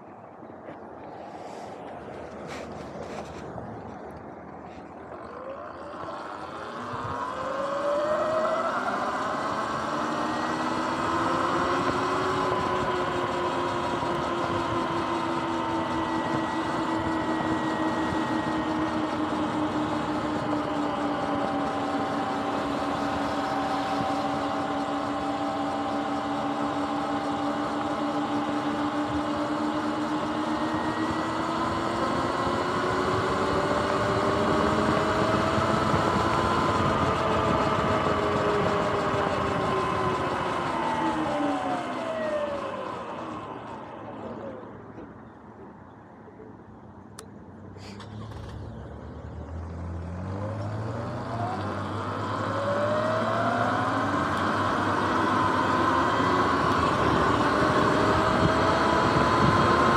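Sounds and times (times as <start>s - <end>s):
electric motor whining: 4.8s - 45.1s, 50.0s - 59.9s.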